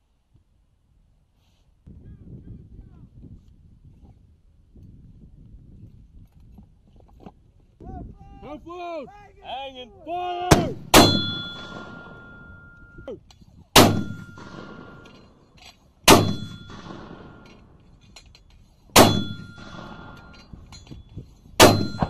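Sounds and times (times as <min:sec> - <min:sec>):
ringing metallic tube tone: 0:11.0 - 0:13.1, 0:16.2 - 0:17.6, 0:19.0 - 0:22.0.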